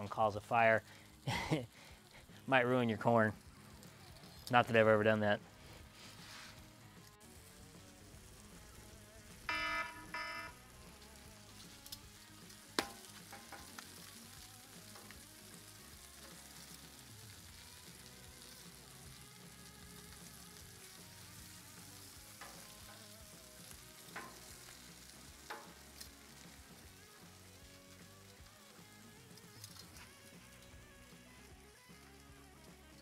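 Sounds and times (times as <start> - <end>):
faint sizzle on a griddle: 0.0 - 33.0
metal tongs clicking on foil: 11.5 - 20.8, 22.0 - 27.2, 28.4 - 30.8.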